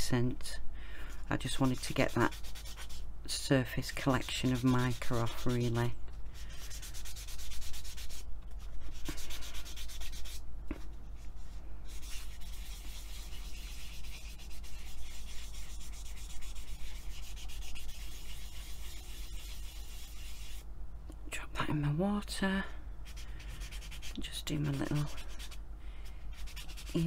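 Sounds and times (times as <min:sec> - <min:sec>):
sanding pad rubbing on clay: 0:01.4 - 0:03.0, 0:03.8 - 0:08.2, 0:08.8 - 0:10.4, 0:11.9 - 0:20.6, 0:23.0 - 0:25.6, 0:26.3 - 0:27.0.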